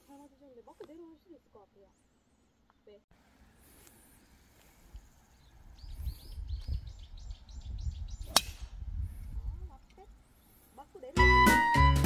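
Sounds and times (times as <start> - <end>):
golf club striking ball: 8.3 - 8.7.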